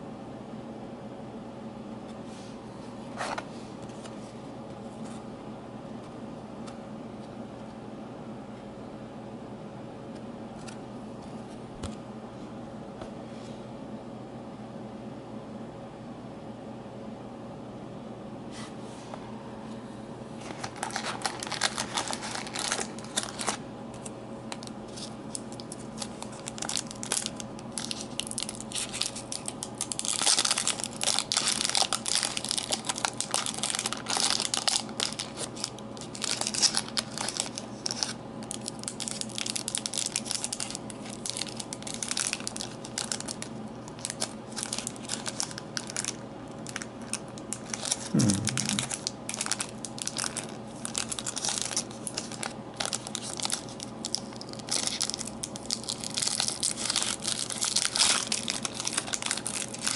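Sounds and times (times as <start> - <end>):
wrapper crackling and tearing: 20.4 - 59.9.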